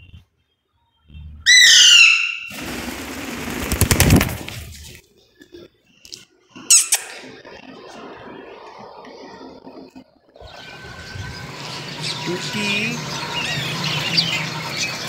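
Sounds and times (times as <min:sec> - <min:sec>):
parrot squawking: 0:01.5 - 0:02.5
wings rustling and fluttering: 0:02.4 - 0:05.1.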